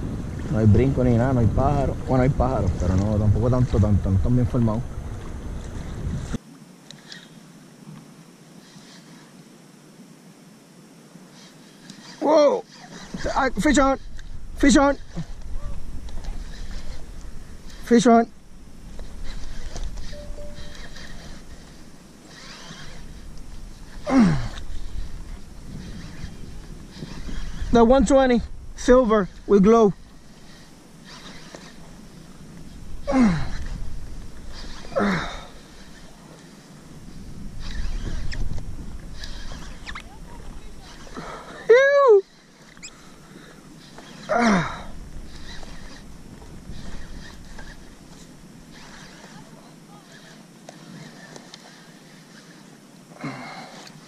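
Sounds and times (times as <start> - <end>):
hiss of wind and water: 0.0 - 54.0.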